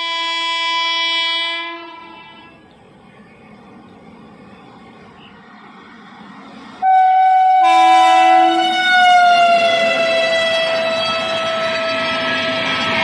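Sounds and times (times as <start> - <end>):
train horn blast: 0.0 - 2.6, 6.8 - 13.0
train rumbling: 0.0 - 13.0.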